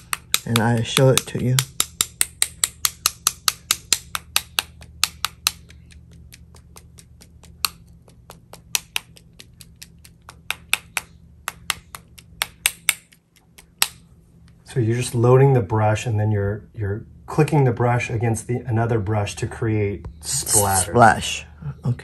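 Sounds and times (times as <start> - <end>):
paintbrush tapping against brush: 0.0 - 12.6.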